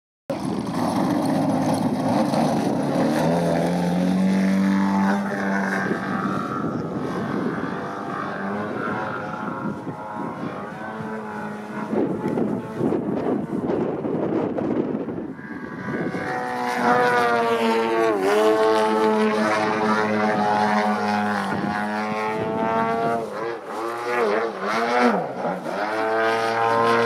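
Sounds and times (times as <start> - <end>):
model plane engine and propeller: 0.3 - 27.0.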